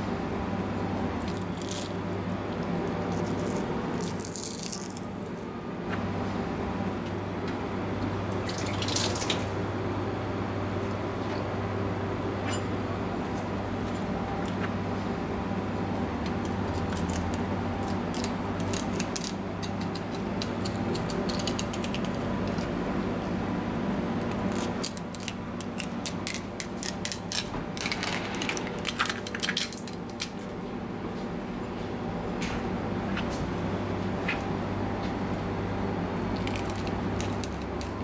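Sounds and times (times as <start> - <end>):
steady low hum: 0.0 - 38.0
knife clicking and scraping bones: 16.2 - 22.7.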